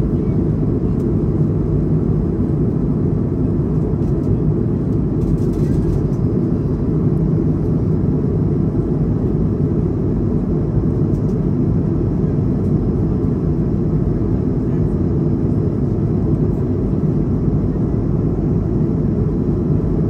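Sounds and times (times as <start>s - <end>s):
jet airliner cabin rumble: 0.0s - 20.0s.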